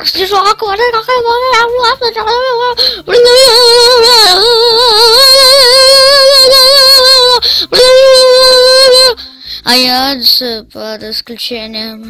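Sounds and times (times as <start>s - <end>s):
high-pitched cartoon voice singing: 0.8s - 9.2s.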